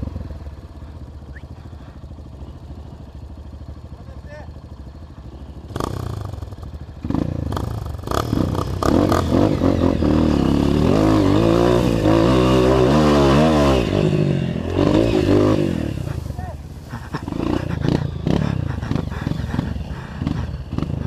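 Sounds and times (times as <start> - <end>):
dirt bike engine revving hard: 5.6 - 21.0.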